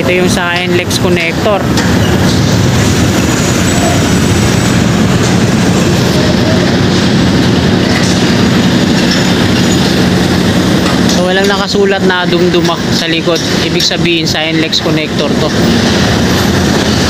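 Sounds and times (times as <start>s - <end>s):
road traffic passing: 0.0s - 17.0s.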